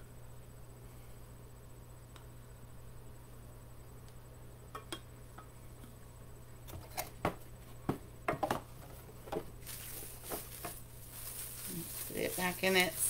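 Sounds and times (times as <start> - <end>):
bag rustling: 9.6 - 13.0.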